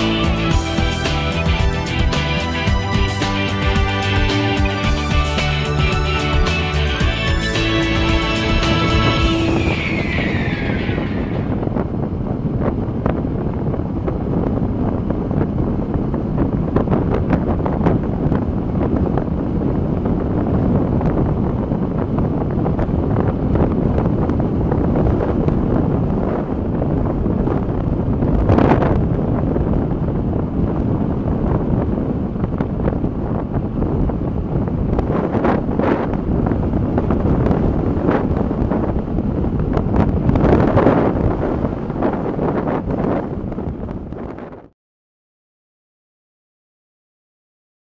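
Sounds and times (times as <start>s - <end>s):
wind buffeting microphone: 0.0s - 44.7s.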